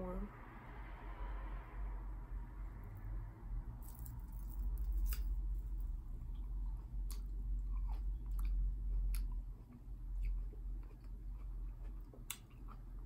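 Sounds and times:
person chewing grape: 6.3s - 13.0s.

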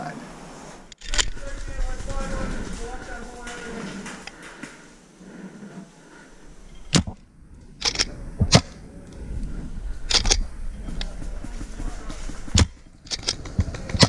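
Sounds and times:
paintball markers firing: 11.0s - 14.0s.

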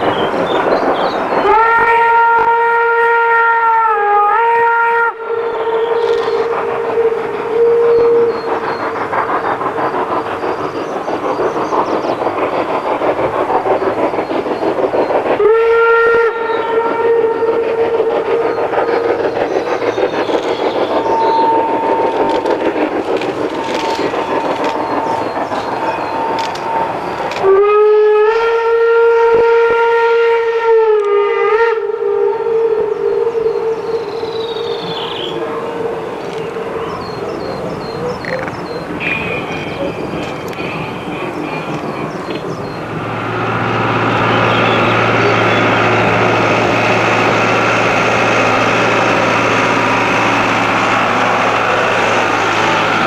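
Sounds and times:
steam locomotive chuffing: 0.0s - 53.0s
steam whistle blast: 1.4s - 8.4s, 15.4s - 18.2s, 21.0s - 22.2s, 27.4s - 36.8s.

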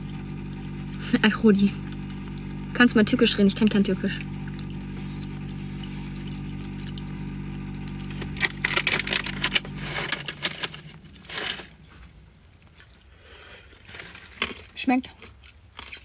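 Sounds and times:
low machine hum: 0.0s - 14.8s
rustles: 4.7s - 16.0s.

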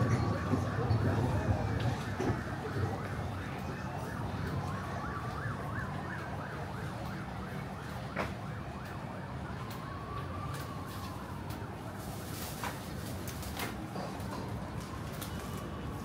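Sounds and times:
siren yelping: 0.0s - 11.5s
siren wailing tone: 0.0s - 11.6s.

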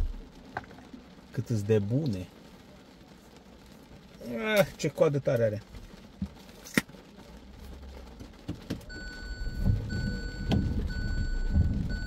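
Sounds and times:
car warning chime: 8.9s - 12.0s.

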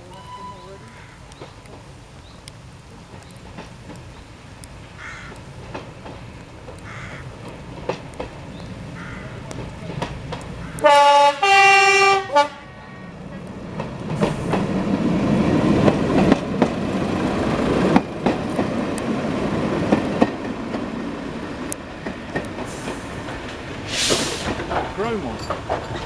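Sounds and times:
wheels clicking over rail joints: 0.0s - 12.0s, 13.2s - 26.0s
two-tone train horn: 0.1s - 0.8s, 10.8s - 13.2s.

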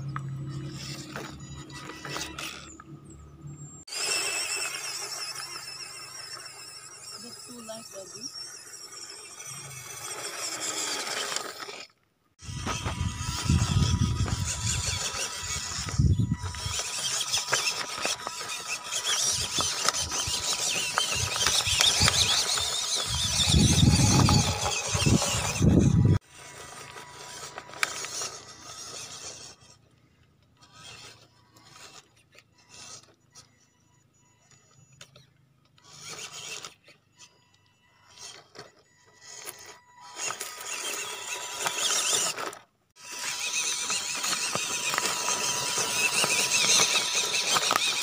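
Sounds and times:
tires crunching on stones: 0.0s - 7.6s, 8.4s - 33.4s, 38.0s - 48.0s
electric motor and gears whining: 0.0s - 48.0s.

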